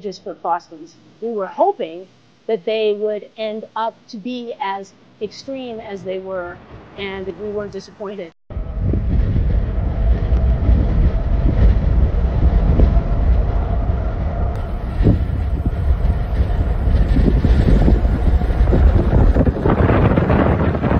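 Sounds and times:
faint engine tone: 0:05.2 - 0:20.2
jet engines rumbling: 0:05.6 - 0:20.9
wind buffeting microphone: 0:08.5 - 0:20.9.

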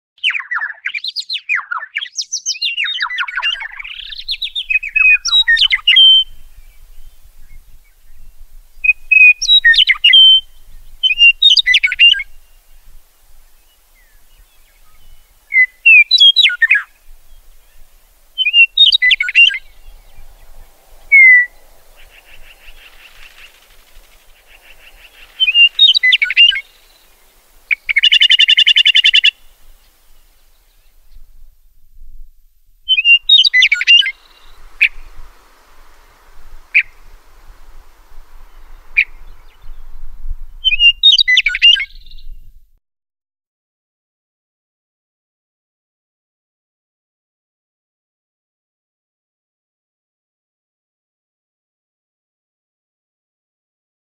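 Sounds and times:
songbird singing: 0:00.2 - 0:42.6
buzzy bird call: 0:14.2 - 0:30.6, 0:32.9 - 0:40.0.

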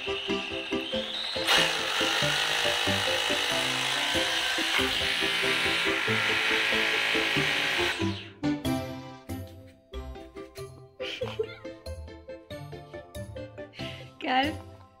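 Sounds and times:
power drill drilling into tile: 0:00.0 - 0:08.4
background music: 0:00.0 - 0:15.0.

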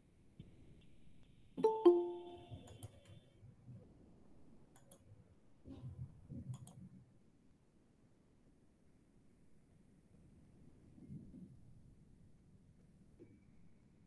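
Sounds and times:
two-note electronic notification chime: 0:01.6 - 0:02.6
soft clicks: 0:01.6 - 0:03.2, 0:04.7 - 0:05.1, 0:06.5 - 0:06.9.

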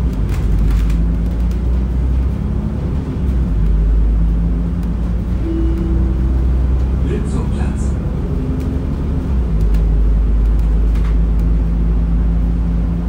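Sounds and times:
air conditioning running: 0:00.0 - 0:13.0
bus engine and road rumble: 0:00.0 - 0:13.0
short steady tone: 0:05.4 - 0:08.0.

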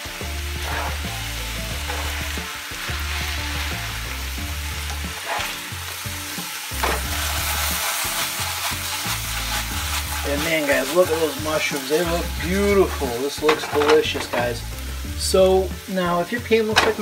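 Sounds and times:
chicken and mushrooms sizzling: 0:00.0 - 0:17.0
metal spatula scraping pan: 0:00.5 - 0:03.7, 0:04.7 - 0:06.0, 0:06.8 - 0:14.6.

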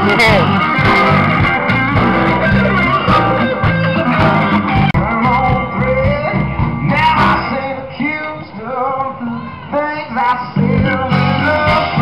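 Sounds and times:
amplified guitars: 0:00.0 - 0:12.0
person singing: 0:02.0 - 0:12.0.

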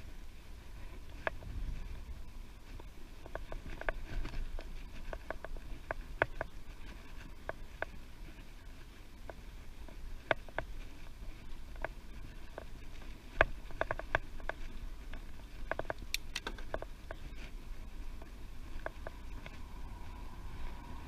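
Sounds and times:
wind on microphone: 0:00.0 - 0:21.0
bicycle clicks and rattles: 0:00.4 - 0:21.0.

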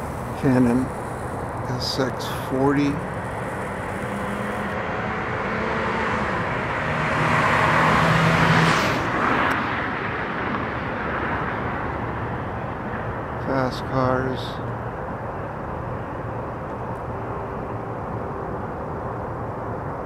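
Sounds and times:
car passing fast: 0:00.0 - 0:12.1
steady road noise: 0:00.0 - 0:20.0.

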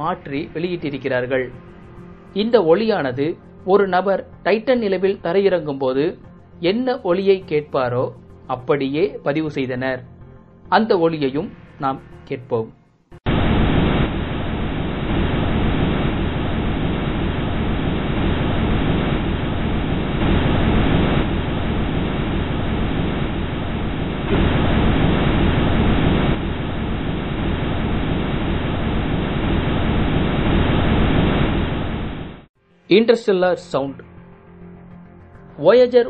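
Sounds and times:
steady rushing noise: 0:13.3 - 0:32.5.

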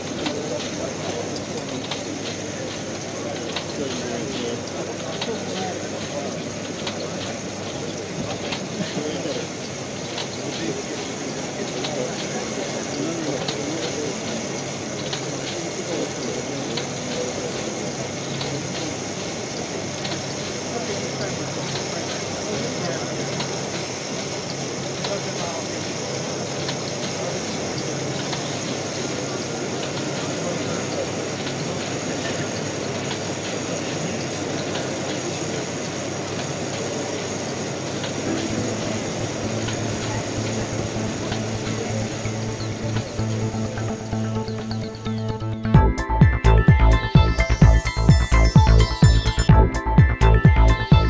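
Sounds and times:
model engine clattering: 0:00.0 - 0:38.5
murmur of many voices: 0:00.0 - 0:51.0.

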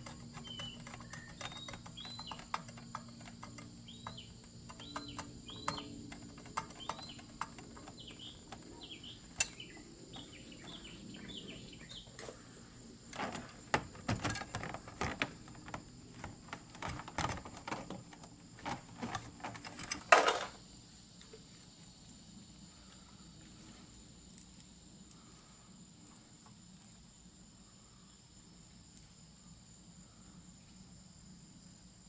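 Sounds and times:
metal electrical box clattering: 0:00.0 - 0:12.1, 0:13.1 - 0:20.6
bird chirping: 0:00.0 - 0:12.6.

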